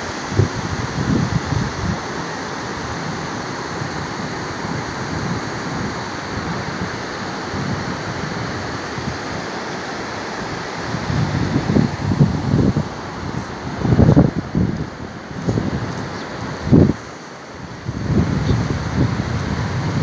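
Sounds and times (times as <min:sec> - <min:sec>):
floodwater rushing: 0:00.0 - 0:20.0
wind buffeting microphone: 0:10.4 - 0:20.0.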